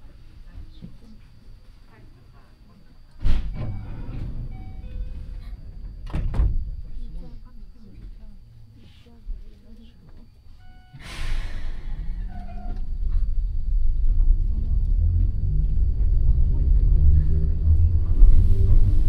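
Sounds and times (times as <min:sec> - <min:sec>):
short hiss: 0:11.0 - 0:11.9
train motors humming and rising: 0:11.1 - 0:19.0.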